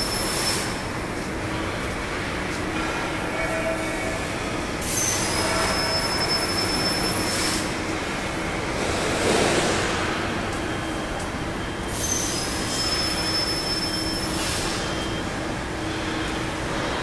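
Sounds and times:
factory machinery noise: 0.0s - 17.0s
thin high whistle: 11.9s - 15.2s.

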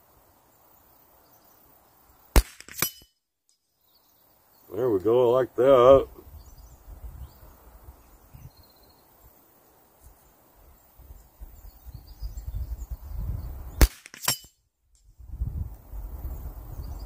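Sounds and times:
rifle shot crack: 2.4s - 3.0s, 13.8s - 14.5s
wind rumble on microphone: 5.9s - 8.8s, 10.6s - 13.8s, 15.0s - 17.0s.

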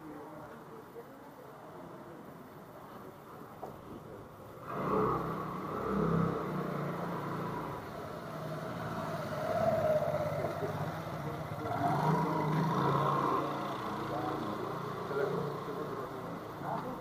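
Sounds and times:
scooter engine passing: 4.5s - 17.0s.

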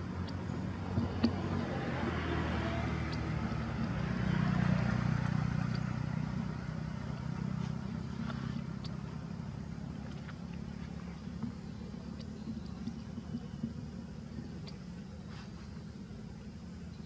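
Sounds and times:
vehicle engine running: 0.0s - 17.0s
faint ticks: 0.1s - 1.7s, 2.6s - 4.0s, 5.2s - 9.2s, 9.9s - 17.0s.

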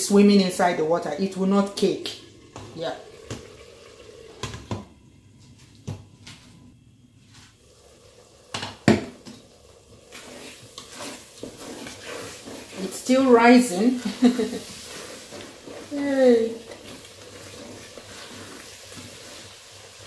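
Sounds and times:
hot pot hissing: 0.0s - 5.4s, 6.8s - 20.0s
wooden spoon scraping pot: 9.3s - 20.0s.

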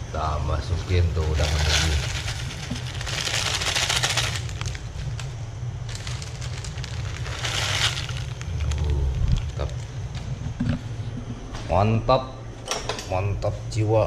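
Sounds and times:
boiling water rumble: 0.0s - 11.4s
crinkly plastic packet rustling: 1.3s - 9.9s.

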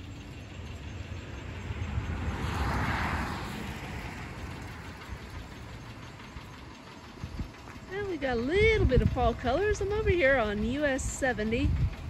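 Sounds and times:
vehicle driving past: 0.0s - 8.0s.

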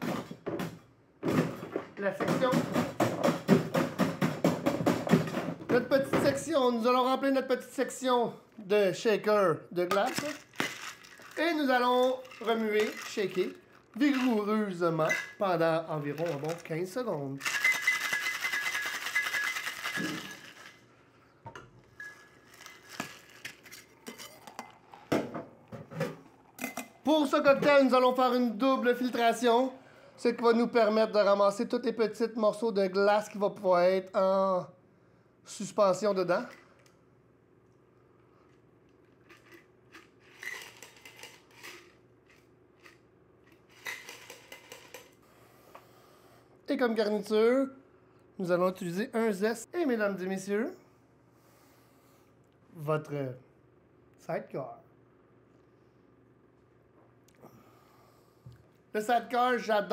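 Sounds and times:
ice rattling in cocktail shaker: 9.9s - 15.4s, 16.0s - 20.9s, 22.0s - 25.1s, 39.2s - 43.0s, 43.6s - 45.1s
metal shaker tins clinking: 9.9s - 15.4s, 16.0s - 16.8s, 17.4s - 20.9s, 22.0s - 25.2s, 39.2s - 43.0s, 43.6s - 45.2s.

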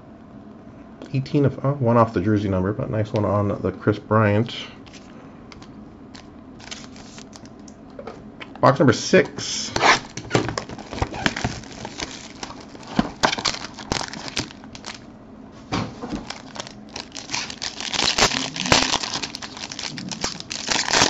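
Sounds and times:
foil wrapper crinkling: 6.2s - 7.6s, 9.8s - 15.1s, 16.0s - 21.0s.

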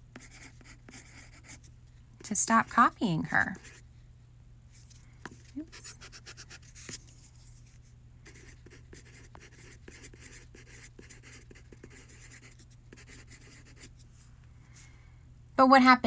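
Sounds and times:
steady low hum: 0.0s - 16.0s
colored pencil scratching on paper: 0.1s - 1.6s, 2.6s - 3.8s, 5.3s - 7.2s, 8.2s - 14.0s.

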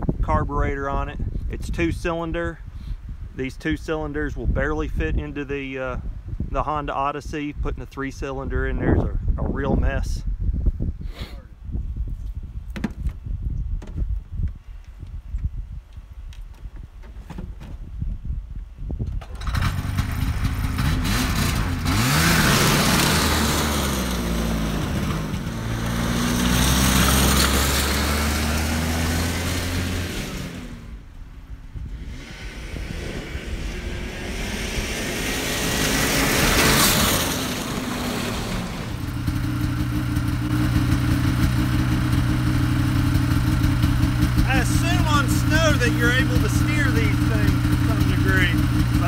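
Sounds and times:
snowmobile engine revving: 19.4s - 31.1s, 31.8s - 49.0s
snowmobile engine idling: 35.4s - 49.0s.

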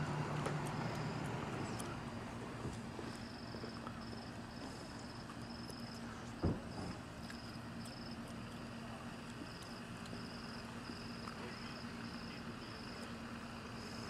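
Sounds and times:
crickets chirping: 0.0s - 14.0s
steady low hum: 0.0s - 14.0s
thump: 6.4s - 7.0s.

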